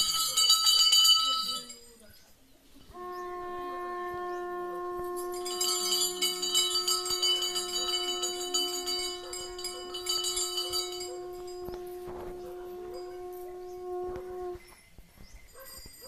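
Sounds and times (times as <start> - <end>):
bells rung rapidly: 0.0 - 2.9, 5.1 - 13.5, 14.6 - 16.0
steady pitched drone: 4.8 - 14.6.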